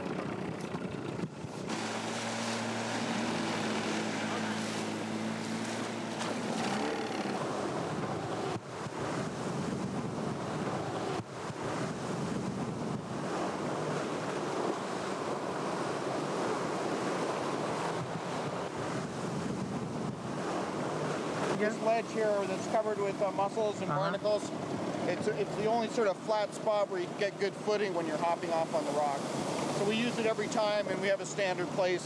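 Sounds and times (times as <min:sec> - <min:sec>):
wind buffeting microphone: 0:00.0 - 0:22.5
choppy sea and surf: 0:00.0 - 0:32.0
outboard motor humming: 0:00.0 - 0:32.0.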